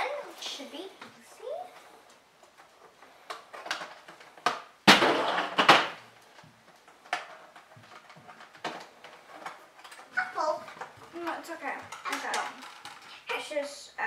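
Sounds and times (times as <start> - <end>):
coins and plastic clattering: 10.8 - 13.3.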